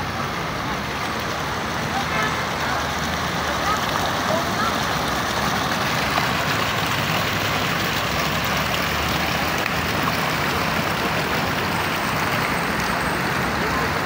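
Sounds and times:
fountain water splashing: 0.0s - 14.0s.

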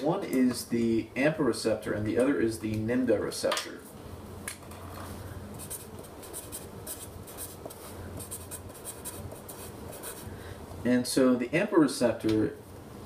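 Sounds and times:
marker pen scratching on paper: 5.6s - 10.3s.

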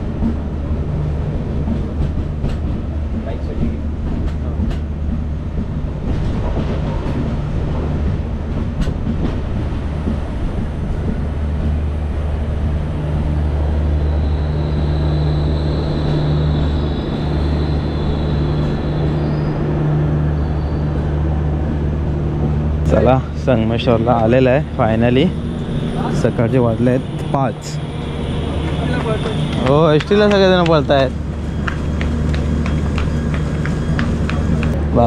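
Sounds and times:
train rumbling: 0.0s - 35.0s
train wheel clicks: 1.7s - 7.3s
brake squeal: 13.8s - 21.1s, 23.8s - 34.8s.

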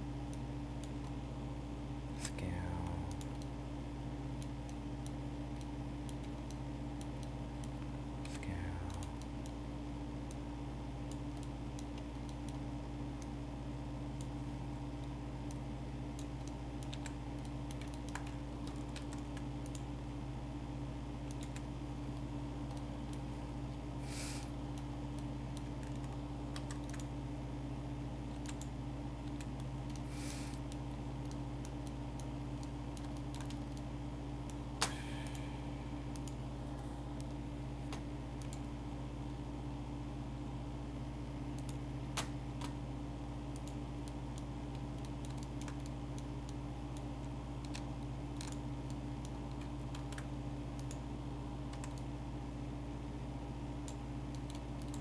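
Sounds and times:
low electrical hum: 0.0s - 55.0s
computer mouse clicks: 4.4s - 9.6s, 15.0s - 19.9s, 21.2s - 23.3s, 24.2s - 27.2s, 28.3s - 35.5s, 36.1s - 36.4s, 37.1s - 38.8s, 41.5s - 42.8s, 43.5s - 52.1s, 53.8s - 55.0s
computer keyboard clicks: 15.5s - 19.9s, 21.2s - 21.7s, 24.8s - 27.1s, 28.3s - 30.0s, 30.7s - 33.9s, 43.5s - 51.0s, 51.7s - 52.1s, 53.8s - 55.0s.

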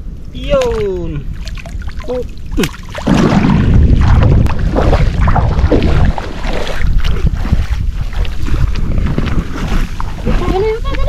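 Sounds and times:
wind buffeting microphone: 0.0s - 11.0s
shallow water sloshing and splashing: 0.6s - 11.0s.

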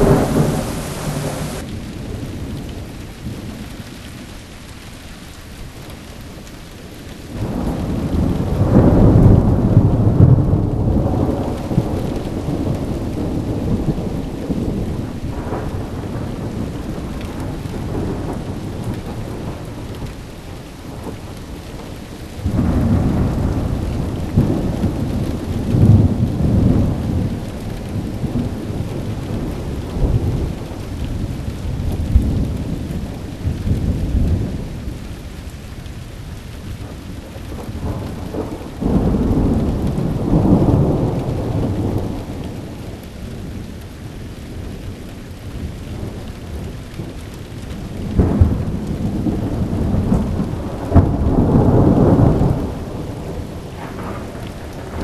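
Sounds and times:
rolling thunder: 0.0s - 3.6s, 7.4s - 20.1s, 22.4s - 35.0s, 36.8s - 43.6s, 45.6s - 55.0s
steady rain: 0.0s - 55.0s.

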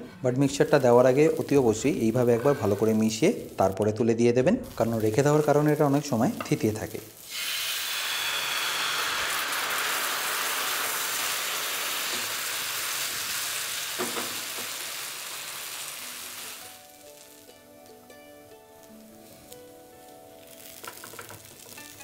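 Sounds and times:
background music: 0.0s - 7.2s, 14.4s - 22.0s
batter sizzling in frying pan: 0.0s - 22.0s.

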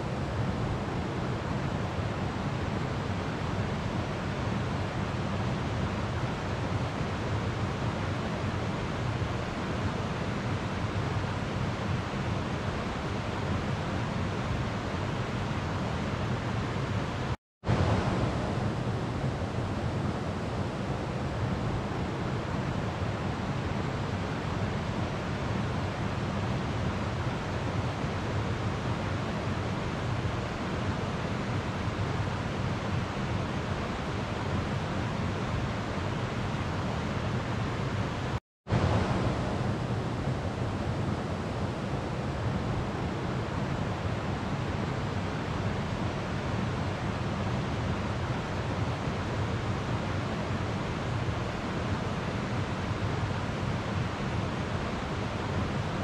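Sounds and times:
river water flowing: 17.7s - 56.0s.

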